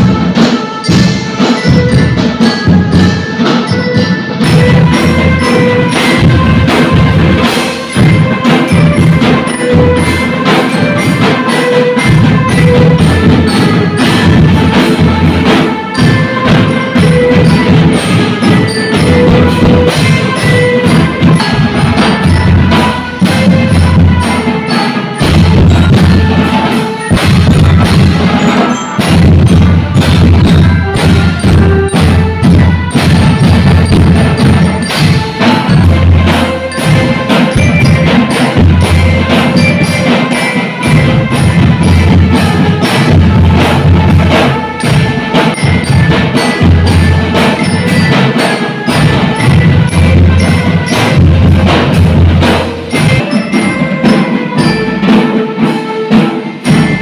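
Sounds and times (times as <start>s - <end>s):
glockenspiel melody: 0.0s - 57.0s
snare and tenor drum strokes: 0.0s - 57.0s
hand cymbals crashing: 0.4s - 57.0s.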